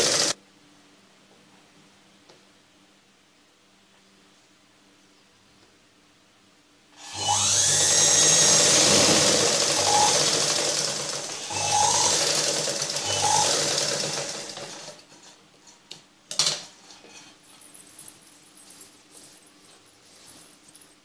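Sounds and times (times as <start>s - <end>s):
sewing machine running: 0.0s - 0.4s, 7.0s - 15.0s.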